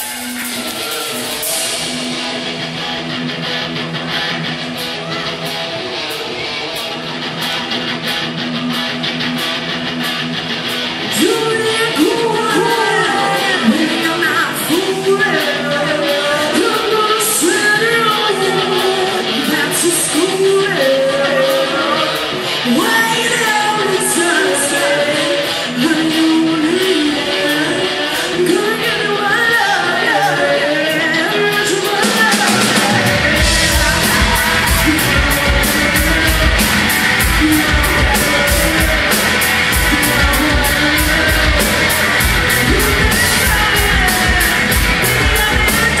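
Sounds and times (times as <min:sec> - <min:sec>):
drum kit with cymbals: 0:00.0 - 0:11.0, 0:31.8 - 0:46.0
loud electric guitar: 0:00.0 - 0:46.0.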